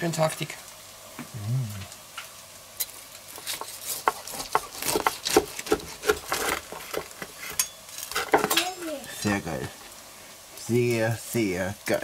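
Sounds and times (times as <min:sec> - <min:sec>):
knife crunching through crackling: 0:02.8 - 0:08.4.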